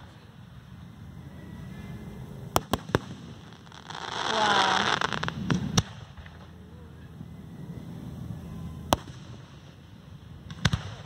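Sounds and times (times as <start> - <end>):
fireworks bangs: 2.5 - 11.0.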